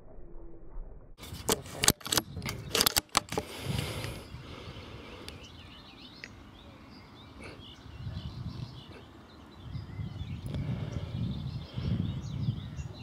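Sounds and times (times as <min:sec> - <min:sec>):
rifle bolt metallic clicks: 0:01.4 - 0:03.5
small birds chirping: 0:02.0 - 0:13.0.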